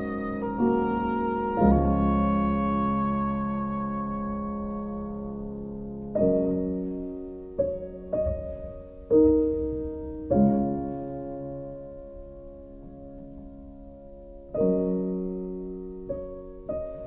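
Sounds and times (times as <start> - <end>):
slow piano chords: 0.0 - 17.0.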